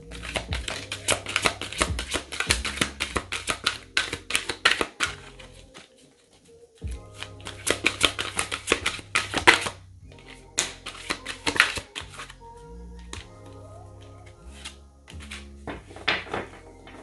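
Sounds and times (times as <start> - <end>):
soft background music: 0.0 - 17.0
cards being shuffled: 0.1 - 6.3, 7.2 - 9.8, 10.6 - 12.4, 14.6 - 17.0
cards set down on table: 15.1 - 17.0.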